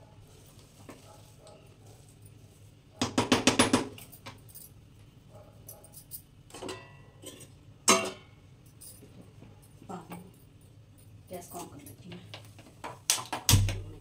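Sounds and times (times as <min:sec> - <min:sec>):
spatula knocking on a pot: 0:03.0 - 0:03.9.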